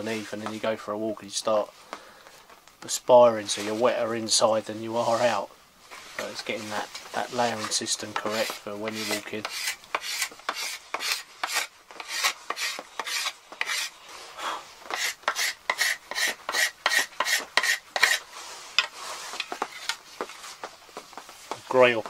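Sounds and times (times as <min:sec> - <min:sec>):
scraper scraping wood: 0:07.4 - 0:14.0, 0:14.9 - 0:20.0.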